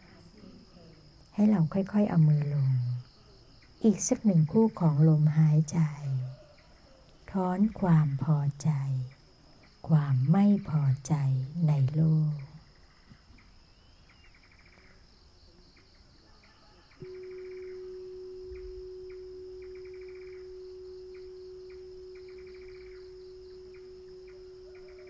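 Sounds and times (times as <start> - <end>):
crickets chirping: 0.0 - 25.0
meditation bell ringing: 17.0 - 25.0.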